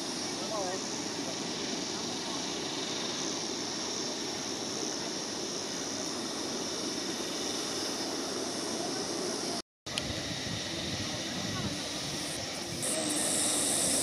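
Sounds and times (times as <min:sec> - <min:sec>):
constant high hiss: 0:00.0 - 0:14.0
wind over microphone: 0:09.9 - 0:14.0.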